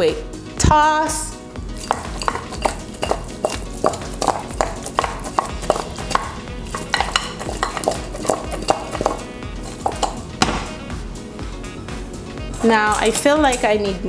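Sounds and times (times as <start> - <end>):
background music: 0.0 - 14.0
chicken pieces knocking in glass bowl: 1.8 - 10.6.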